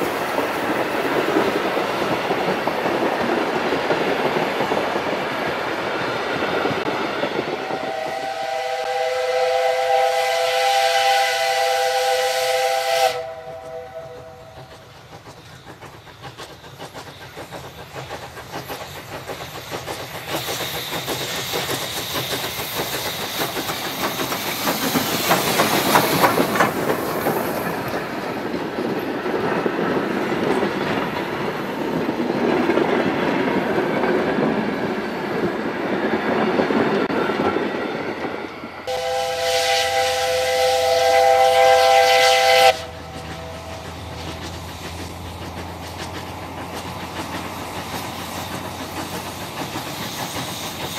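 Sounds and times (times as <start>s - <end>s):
train wheels clattering over rail joints: 0.0s - 7.8s, 14.4s - 38.7s, 41.1s - 50.9s
steam hissing: 0.0s - 50.9s
steam whistle blast: 7.6s - 14.6s, 38.9s - 43.7s.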